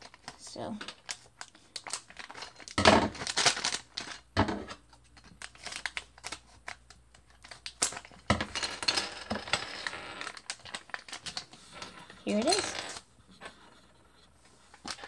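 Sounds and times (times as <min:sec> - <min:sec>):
plastic bag crinkling: 0:00.0 - 0:04.3, 0:09.8 - 0:11.6, 0:12.2 - 0:13.0
plastic rustling: 0:00.0 - 0:04.3, 0:09.8 - 0:13.8.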